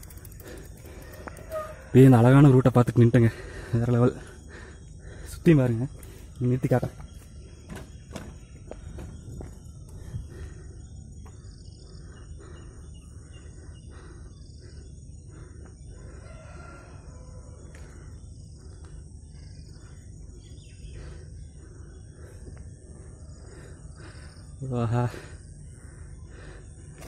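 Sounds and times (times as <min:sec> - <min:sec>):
small birds chirping: 0:00.0 - 0:27.0
rooster crowing: 0:00.8 - 0:02.4, 0:16.0 - 0:17.8.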